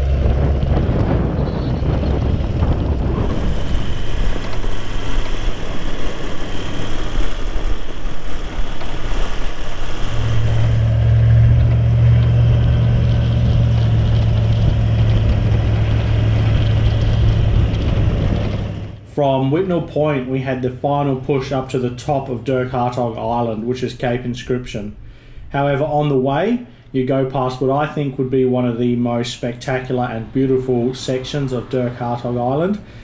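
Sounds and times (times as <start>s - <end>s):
road and wind noise: 0.0s - 19.0s, 21.0s - 33.0s
vehicle engine running: 0.0s - 19.0s
low engine drone: 0.0s - 24.3s, 27.6s - 33.0s.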